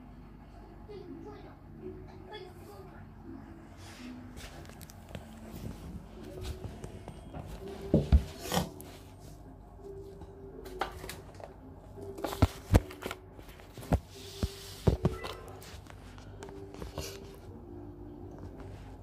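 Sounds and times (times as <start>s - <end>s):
faint background music: 0.0s - 19.0s
rustling and rubbing: 12.1s - 17.6s.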